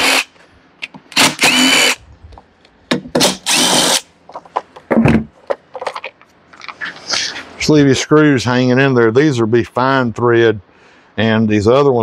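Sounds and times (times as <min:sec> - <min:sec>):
impact driver running: 0:00.0 - 0:00.3, 0:01.2 - 0:02.0, 0:03.2 - 0:04.0.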